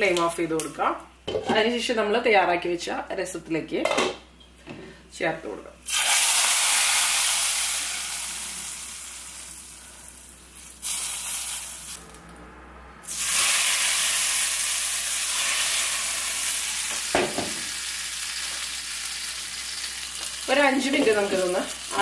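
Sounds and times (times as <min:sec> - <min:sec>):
hot oil sizzling in liquid: 0:05.8 - 0:12.0, 0:13.0 - 0:22.0.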